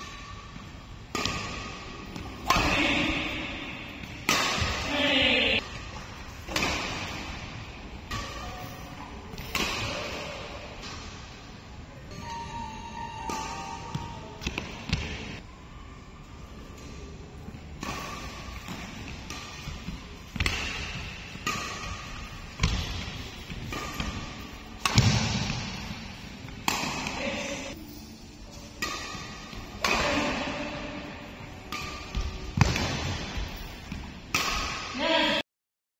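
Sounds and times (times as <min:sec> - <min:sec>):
badminton racket hitting shuttlecock: 0:01.1 - 0:05.8, 0:06.4 - 0:08.6, 0:17.8 - 0:27.7, 0:28.6 - 0:35.3.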